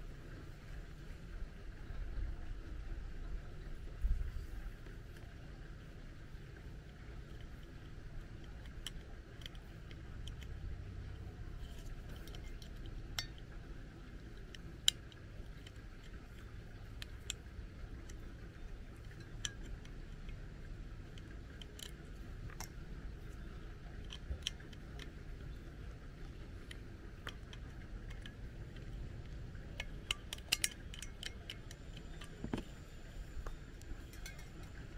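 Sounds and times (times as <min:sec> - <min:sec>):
low steady rumble: 0:00.0 - 0:34.9
small plastic clicks and taps: 0:21.1 - 0:32.8.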